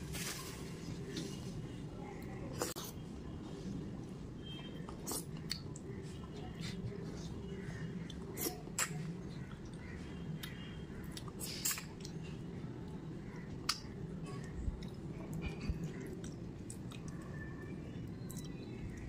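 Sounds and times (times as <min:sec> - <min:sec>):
chewing and lip smacks: 0:04.9 - 0:07.3, 0:13.5 - 0:17.4, 0:18.2 - 0:19.0.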